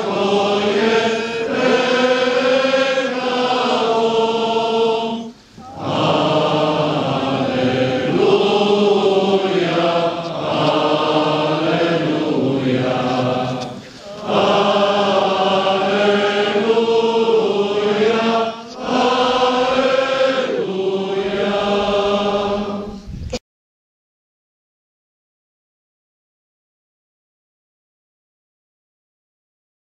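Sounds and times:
group of voices chanting: 0.0 - 22.9.

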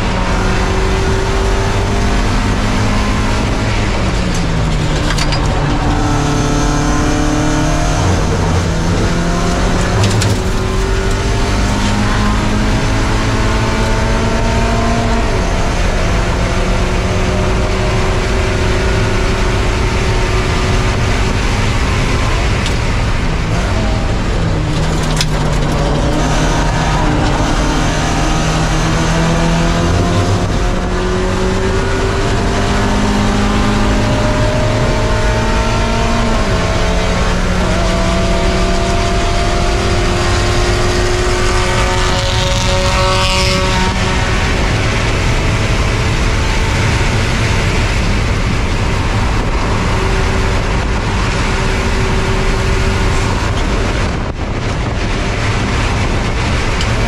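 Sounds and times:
race car engine revving: 0.0 - 57.0
wind and tyre noise: 0.0 - 57.0.

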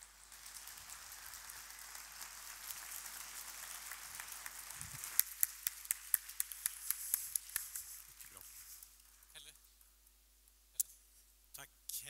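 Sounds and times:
audience applauding: 0.0 - 9.4
loud sharp claps close by: 0.0 - 9.4.

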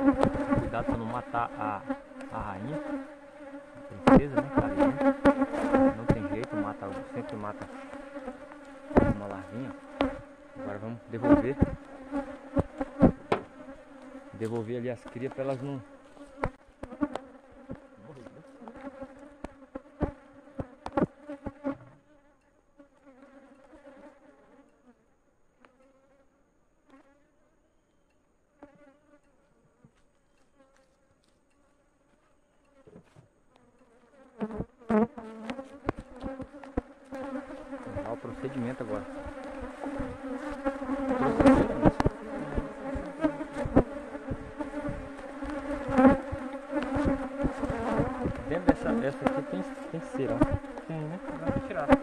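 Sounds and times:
frames knocking in wooden hive box: 0.0 - 1.0, 4.0 - 10.3, 11.2 - 15.4, 18.7 - 21.8, 34.4 - 38.1, 39.0 - 52.0
honeybees buzzing: 0.0 - 27.7, 28.5 - 52.0.

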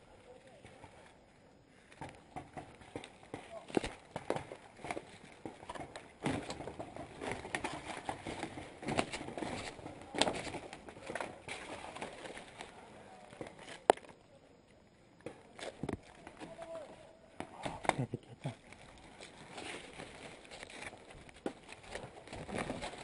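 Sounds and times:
dry leaves and twigs crunching: 1.8 - 14.2, 17.9 - 23.0
branches scraping: 18.6 - 23.0.

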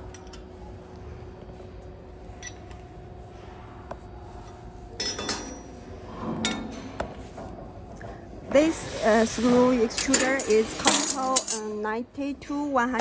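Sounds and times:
faint steady hum: 0.0 - 13.0
metal parts clinking: 5.0 - 5.7, 10.1 - 11.8.

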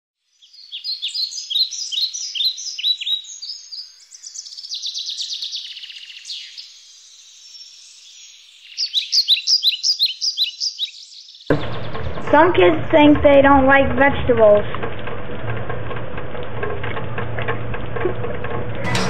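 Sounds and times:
bird chirping and trilling: 0.3 - 12.2.

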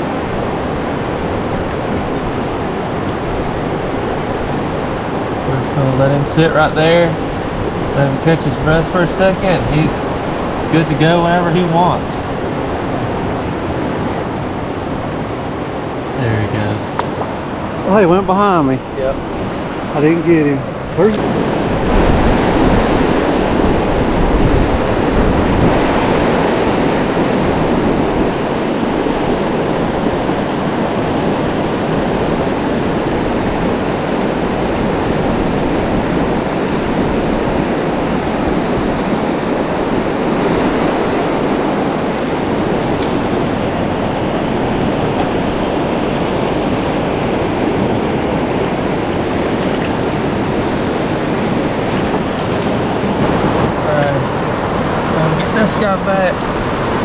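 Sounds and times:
water rushing over rocks: 0.0 - 57.0.

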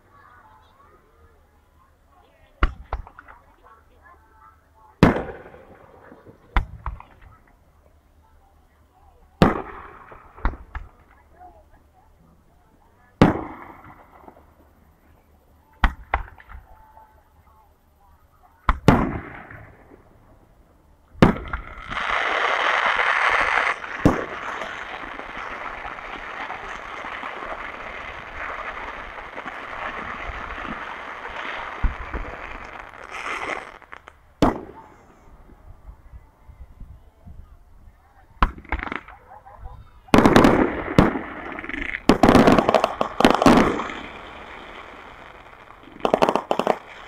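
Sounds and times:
fireworks crackling: 0.0 - 7.8, 9.0 - 17.7, 18.6 - 36.4, 38.3 - 47.0
fireworks bangs: 5.0 - 7.4, 9.3 - 11.1, 13.2 - 14.7, 18.7 - 20.2, 21.2 - 36.1, 38.4 - 47.0.

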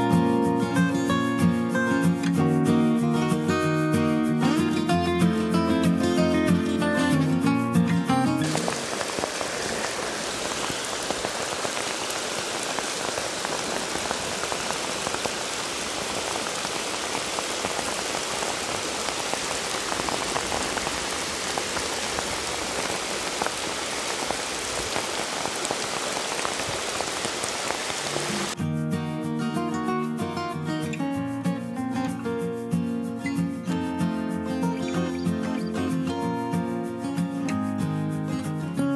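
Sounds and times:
heavy rain on running water: 8.2 - 28.6.

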